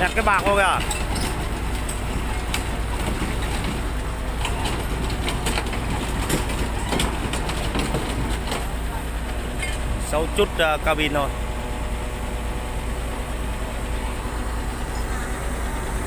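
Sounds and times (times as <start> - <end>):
sharp metallic clanks: 0.0 - 3.8
excavator diesel engine running: 0.0 - 16.0.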